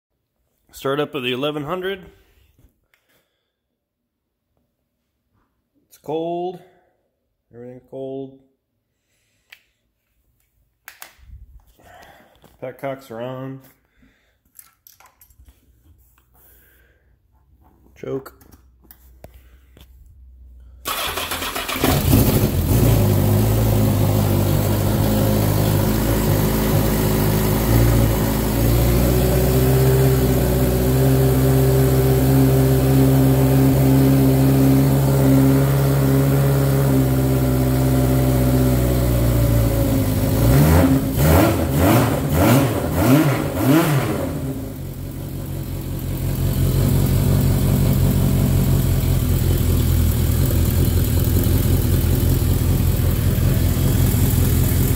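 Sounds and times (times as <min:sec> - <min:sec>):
motorcycle engine starting and idling: 0:20.7 - 0:54.9
motorcycle engine revving: 0:20.9 - 0:54.9.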